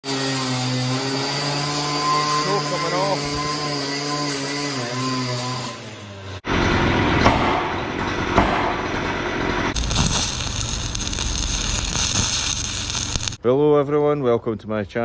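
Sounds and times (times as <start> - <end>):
angle grinder whine: 0.0 - 6.6, 9.7 - 13.4
loud rumbling: 6.4 - 13.4
sharp metal knocks: 7.2 - 9.2
arc welder crackling hiss: 9.7 - 13.4.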